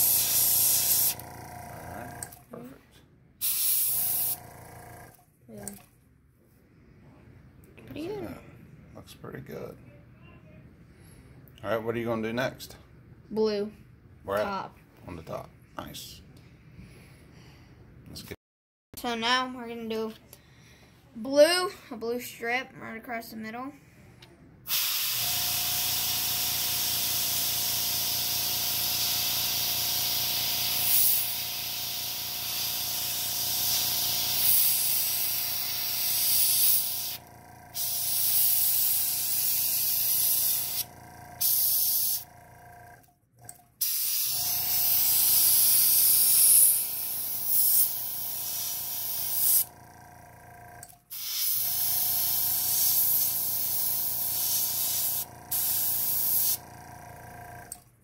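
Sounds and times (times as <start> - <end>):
airbrush spraying hiss: 0.0 - 1.2, 3.4 - 4.4, 28.8 - 37.2, 37.8 - 42.2, 43.8 - 49.7, 51.1 - 56.6
air compressor humming: 0.0 - 2.5, 3.4 - 5.8, 24.6 - 57.8.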